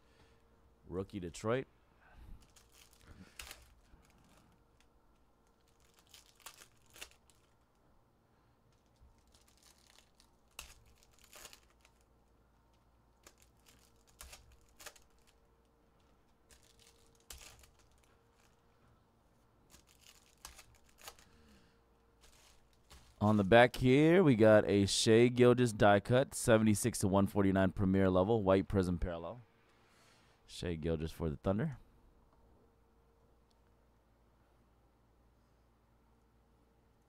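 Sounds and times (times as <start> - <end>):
foil wrappers crinkling and tearing: 2.3 - 7.8, 8.7 - 18.8, 19.6 - 21.6, 22.2 - 23.5.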